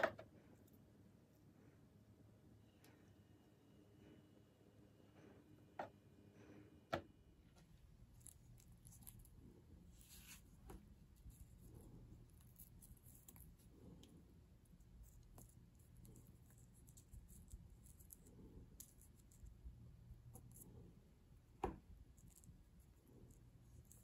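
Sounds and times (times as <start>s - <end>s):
low room hum: 0.0s - 24.0s
fingers rustling and clicking: 7.6s - 24.0s.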